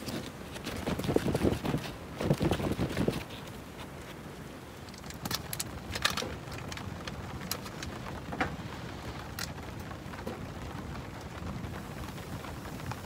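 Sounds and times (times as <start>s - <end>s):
steady hiss: 1.8s - 13.0s
carton and gear clicks and rustles: 4.8s - 13.0s.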